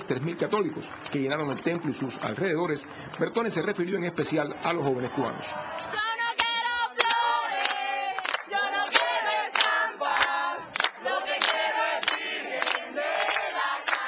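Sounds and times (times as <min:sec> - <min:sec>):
hand-clapping on the beat: 0:00.2 - 0:03.8, 0:05.8 - 0:14.0
crowd singing a hymn: 0:05.0 - 0:14.0.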